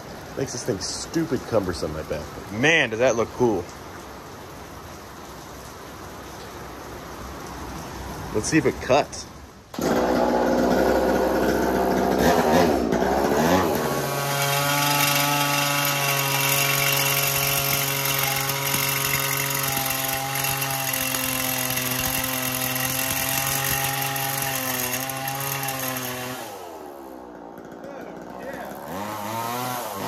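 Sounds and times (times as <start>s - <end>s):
chainsaw engine revving: 9.7s - 30.0s
saw blade cutting steel: 12.2s - 26.6s.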